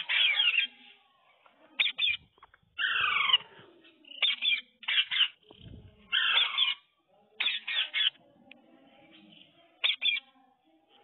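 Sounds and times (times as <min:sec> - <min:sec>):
parakeet screeching: 0:00.0 - 0:00.7, 0:02.8 - 0:03.5, 0:04.2 - 0:05.4, 0:06.1 - 0:08.2, 0:09.8 - 0:10.2.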